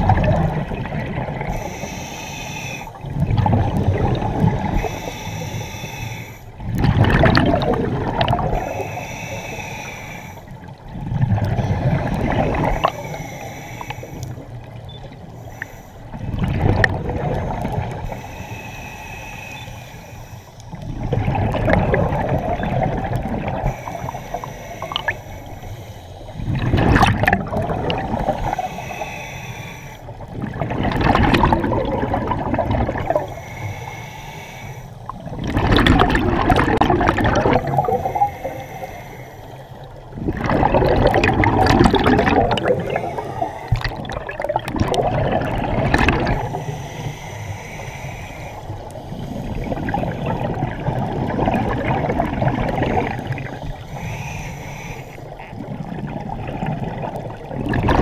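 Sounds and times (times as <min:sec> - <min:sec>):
underwater exhaled bubbles gurgling: 0:00.0 - 0:58.0.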